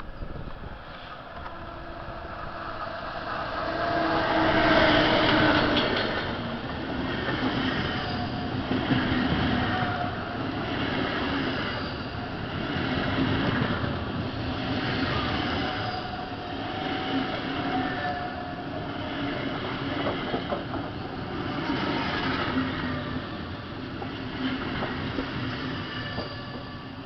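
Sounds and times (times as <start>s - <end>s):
train wheels rumbling on rails: 0.0s - 27.0s
wheels clacking over rail joints: 5.1s - 9.6s.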